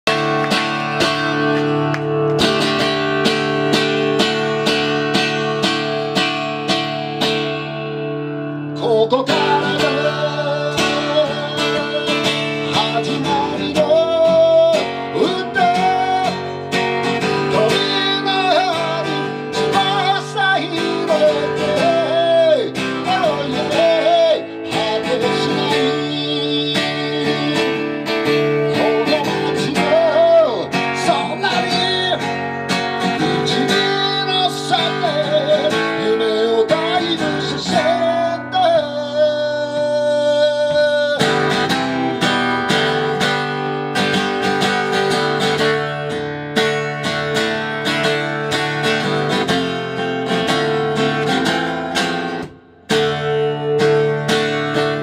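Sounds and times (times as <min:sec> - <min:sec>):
acoustic guitar strumming: 0:00.0 - 0:55.0
man singing: 0:08.5 - 0:45.4.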